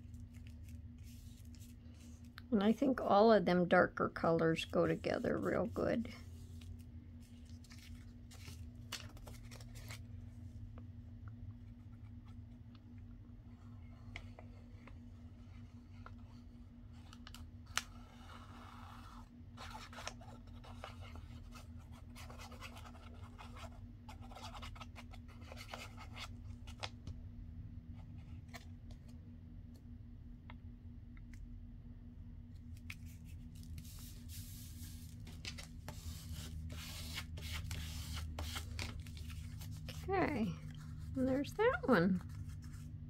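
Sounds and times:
paper rustling and scraping: 0:00.0 - 0:02.3, 0:04.8 - 0:10.2, 0:13.5 - 0:26.9, 0:32.8 - 0:43.0
low steady hum: 0:00.0 - 0:43.0.

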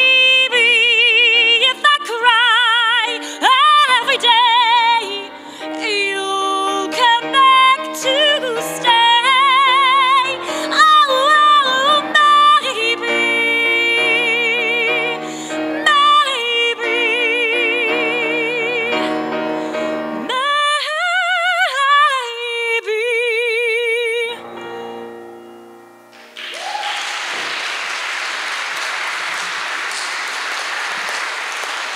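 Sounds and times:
woman singing: 0:00.0 - 0:24.6
grand piano: 0:00.0 - 0:31.9
audience applauding: 0:26.1 - 0:31.9.

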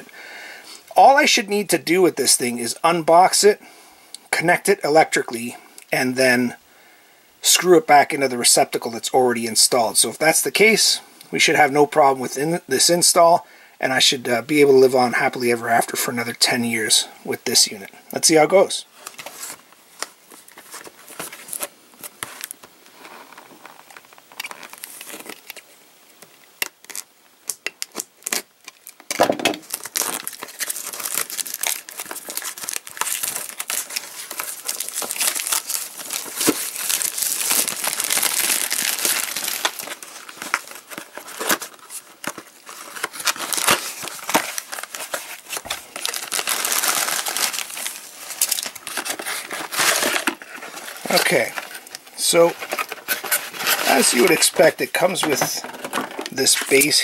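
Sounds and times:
plastic wrap crinkling: 0:18.9 - 0:57.0.

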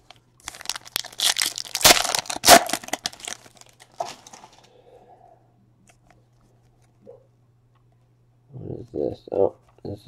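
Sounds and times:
plastic wrapper crinkling: 0:00.0 - 0:04.5.

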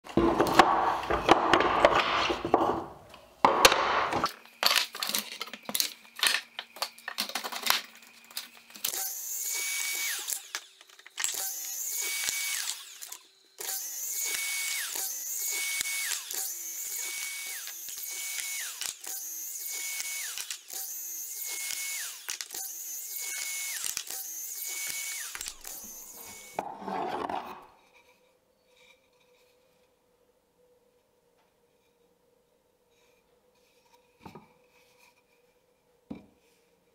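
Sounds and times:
wooden boards clacking: 0:00.1 - 0:04.3
miter saw cutting wood: 0:08.8 - 0:26.7.

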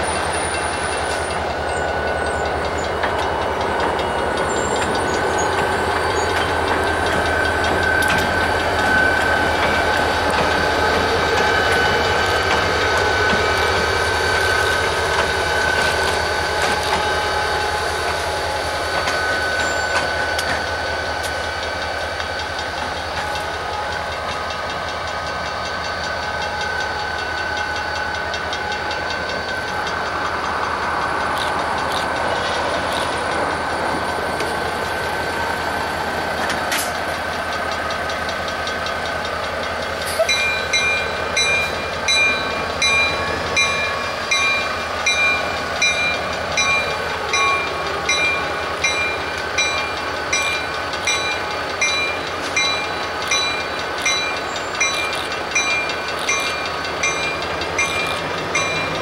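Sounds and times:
diesel locomotive engines running: 0:00.0 - 0:59.0
wheel clicks on rail: 0:18.9 - 0:59.0.

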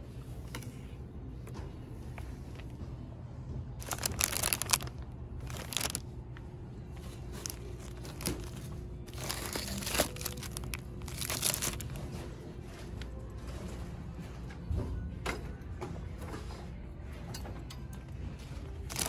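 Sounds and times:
steady low hum: 0:00.0 - 0:17.2
plastic packaging crinkling: 0:03.8 - 0:06.1, 0:07.0 - 0:12.2.

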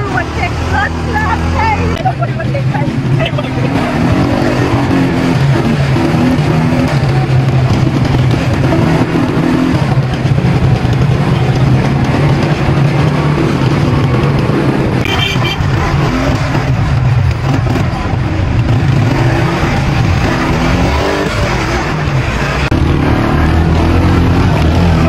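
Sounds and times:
small vehicle engine droning: 0:00.0 - 0:25.0.

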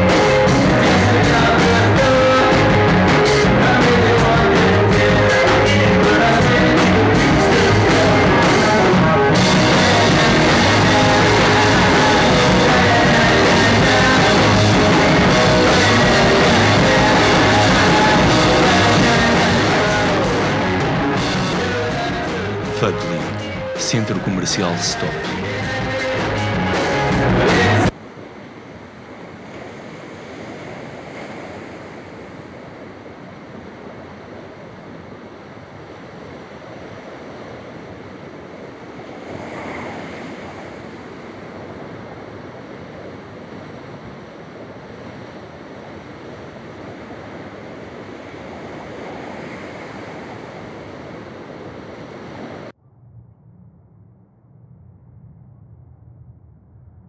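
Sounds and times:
loud live rock band: 0:00.0 - 0:23.8, 0:25.0 - 0:27.9
sea surf washing over rocks: 0:28.1 - 0:52.7.

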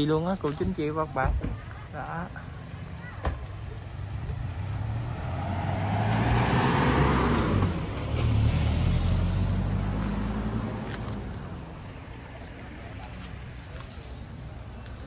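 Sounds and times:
vehicle driving past: 0:03.9 - 0:12.8.

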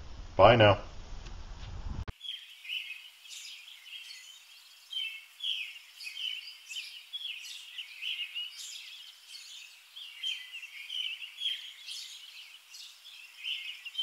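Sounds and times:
faint background hiss: 0:00.0 - 0:14.0
songbirds chirping and singing: 0:02.1 - 0:14.0.

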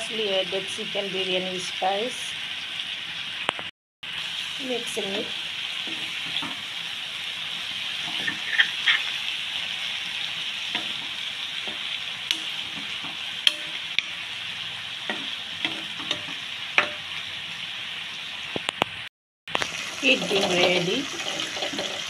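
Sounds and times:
curry sizzling in a frying pan: 0:00.0 - 0:22.0
metal spoon scraping a pan: 0:08.0 - 0:09.3, 0:15.1 - 0:17.1.

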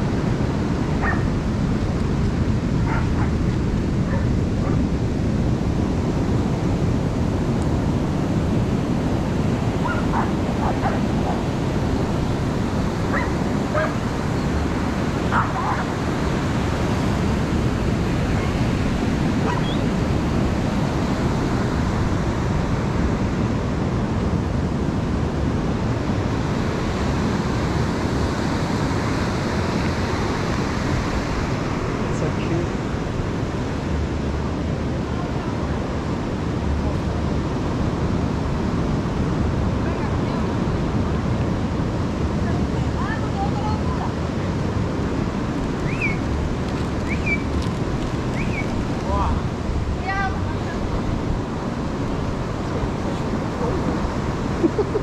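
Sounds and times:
surf breaking on beach: 0:00.0 - 0:55.0
dog barking in high yips: 0:01.0 - 0:01.3, 0:09.8 - 0:11.0, 0:13.1 - 0:14.0, 0:15.3 - 0:15.9, 0:19.4 - 0:19.8.

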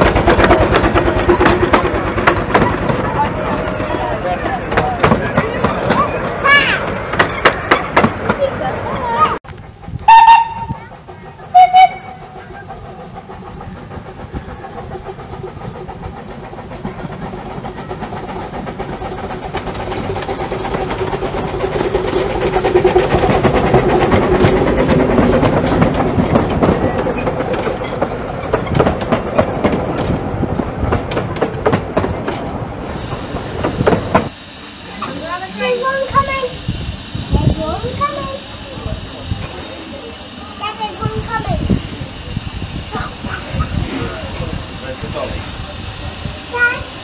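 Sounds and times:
wheels clicking over rail joints: 0:00.0 - 0:36.6
steam train passing: 0:00.0 - 0:47.0.

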